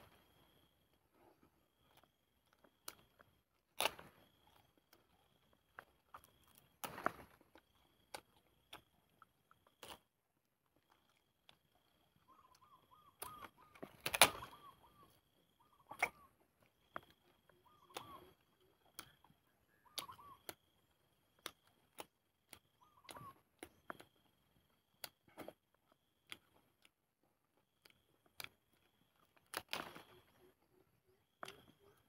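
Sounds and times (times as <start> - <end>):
leaves being chewed: 0.1 - 32.0
bird chirping: 12.2 - 20.6, 22.8 - 23.8.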